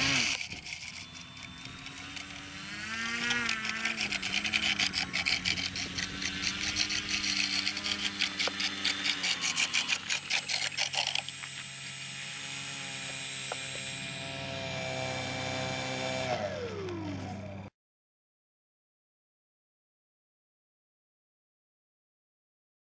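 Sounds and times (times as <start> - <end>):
fast even rattling: 0.0 - 11.3
electric model plane motor: 0.0 - 17.7.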